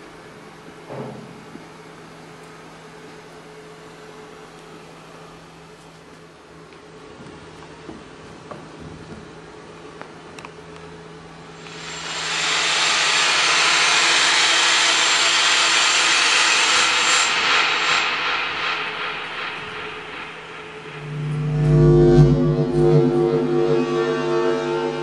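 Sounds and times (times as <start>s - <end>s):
loud hiss: 11.6s - 22.8s
amplified electronic noise: 11.6s - 25.0s
low steady hum: 17.3s - 25.0s.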